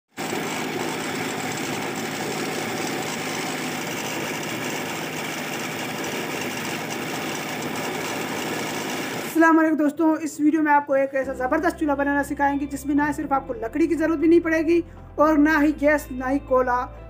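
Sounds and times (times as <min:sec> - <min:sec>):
electric blower humming: 0:00.1 - 0:09.4.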